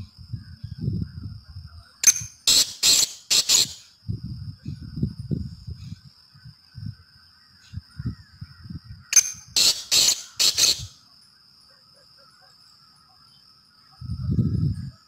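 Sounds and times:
bird giving harsh call: 0:02.0 - 0:03.9, 0:09.1 - 0:11.0.

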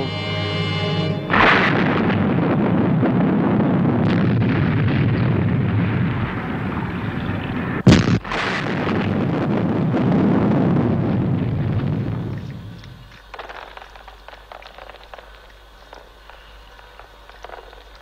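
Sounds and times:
steady rumbling noise: 0:00.0 - 0:18.0
explosion blast: 0:01.2 - 0:12.3.

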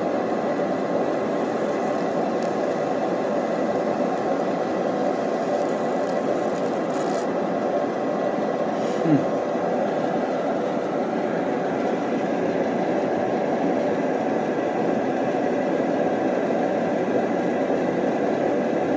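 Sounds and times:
blower air rushing with whine: 0:00.0 - 0:18.9.

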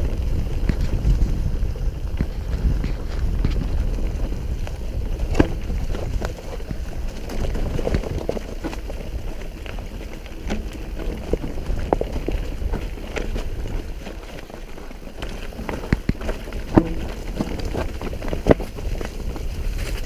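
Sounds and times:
bike rattling over bumps: 0:00.0 - 0:20.0
tyres crunching over leaves: 0:00.0 - 0:20.0
wind rumble on microphone: 0:00.0 - 0:20.0.

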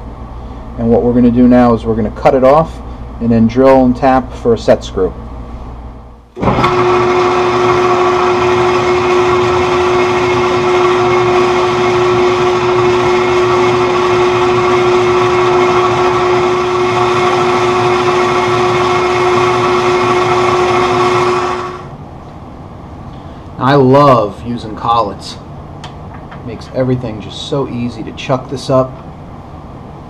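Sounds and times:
machine hum: 0:04.2 - 0:30.0
lathe gear whine: 0:06.4 - 0:21.9.

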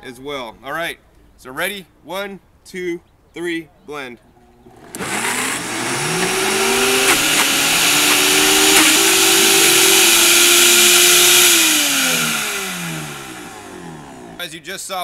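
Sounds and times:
blender motors whining: 0:04.7 - 0:14.4.

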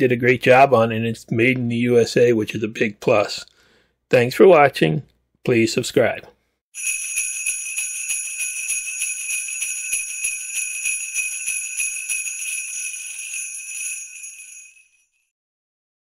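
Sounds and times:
jingle bells shaken: 0:06.8 - 0:15.2.

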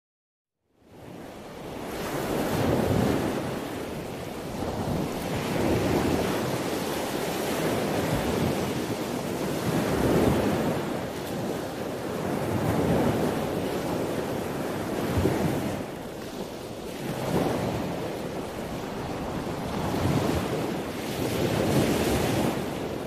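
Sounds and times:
rushing surf-like noise: 0:11.6 - 0:23.0.

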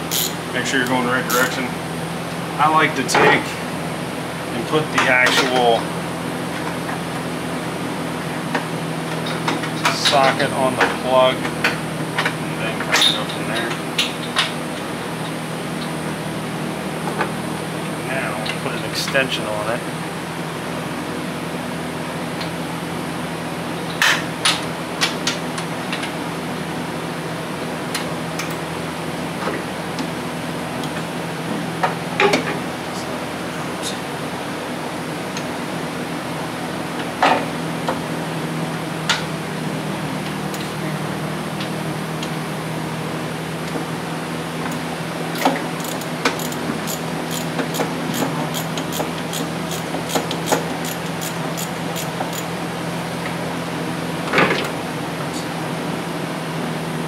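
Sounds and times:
steady hum: 0:00.0 - 0:24.2
steady fan hum: 0:00.0 - 0:57.0
ratchet wrench clicking: 0:00.1 - 0:00.4, 0:45.8 - 0:52.5.

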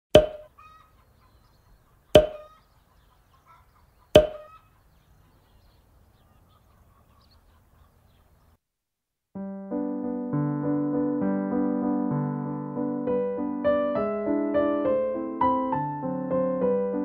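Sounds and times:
pop sound effects: 0:00.1 - 0:00.5, 0:02.2 - 0:02.5, 0:04.2 - 0:04.4
piano music: 0:09.4 - 0:17.0.

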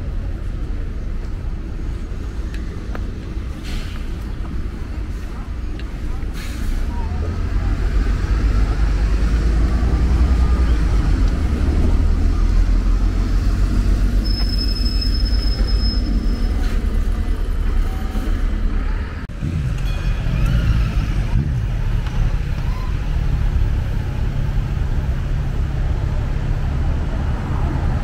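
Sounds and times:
bus engine rumble: 0:00.0 - 0:28.0
street traffic: 0:00.0 - 0:28.0
high beep: 0:14.2 - 0:16.5.

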